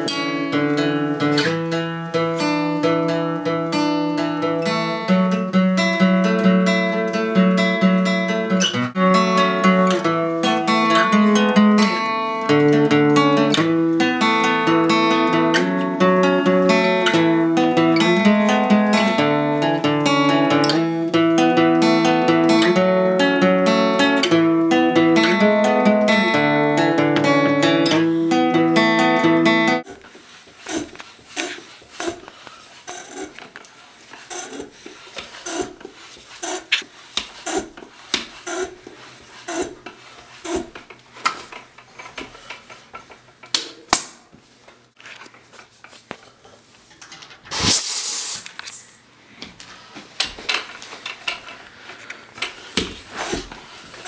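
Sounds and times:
acoustic guitar: 0.0s - 43.6s
bicycle being handled: 29.8s - 54.0s.

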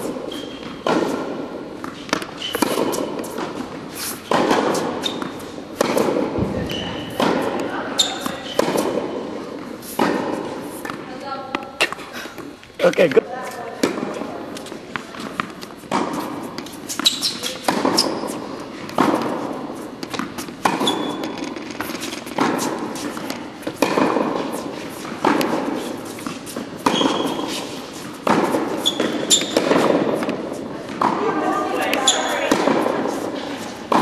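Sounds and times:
tennis ball struck with racket: 0.0s - 12.0s, 12.8s - 34.0s.

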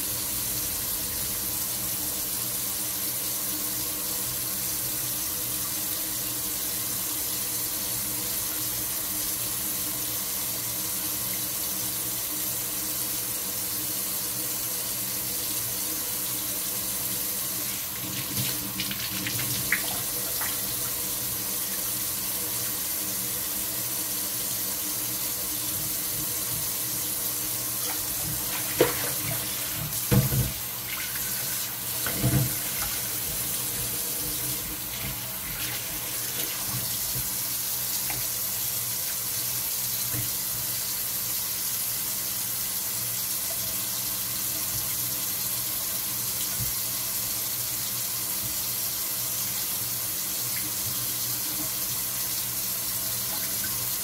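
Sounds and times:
faucet running into sink: 4.3s - 42.0s, 43.0s - 54.0s
water splashes: 27.8s - 37.1s.

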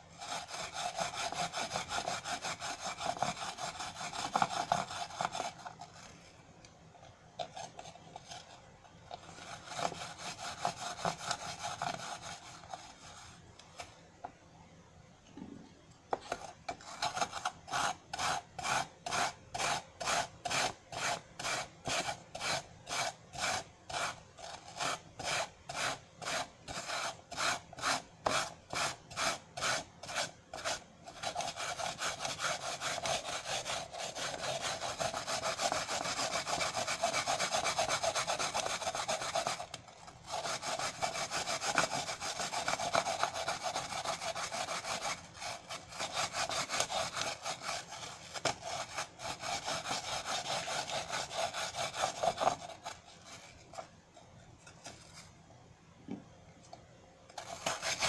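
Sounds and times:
apple rasping on grater: 0.0s - 6.1s, 7.4s - 13.9s, 16.1s - 53.9s, 57.3s - 58.0s.

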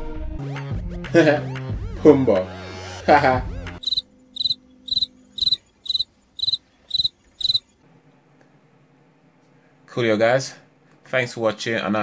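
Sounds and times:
cricket chirping: 3.8s - 7.6s.

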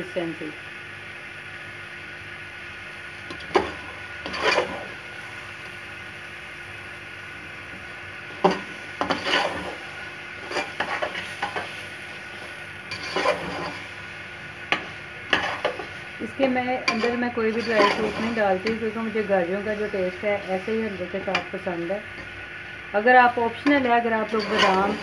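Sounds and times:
metal spoon scraping a pot: 3.6s - 4.9s, 8.5s - 9.8s, 10.4s - 11.7s, 12.9s - 13.9s, 14.7s - 16.0s, 16.8s - 18.8s, 23.6s - 25.0s.

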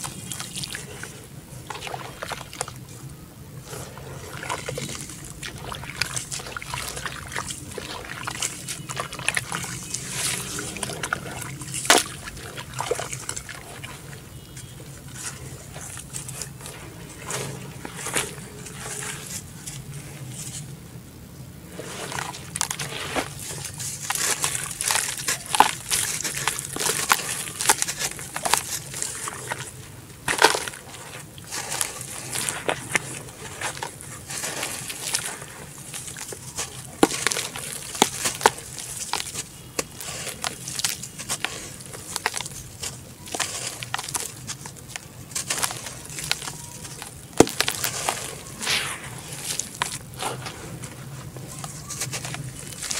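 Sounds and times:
muddy water sloshing: 0.0s - 20.8s, 21.6s - 52.9s
dirt blocks crunching: 21.7s - 52.9s.

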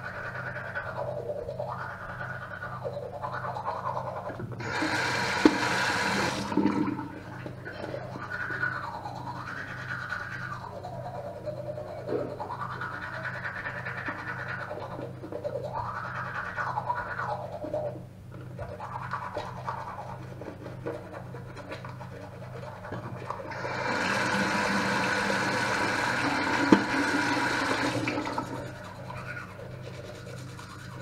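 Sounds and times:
toothbrush scrubbing teeth: 0.0s - 31.0s
water running: 3.3s - 10.6s, 18.6s - 31.0s.

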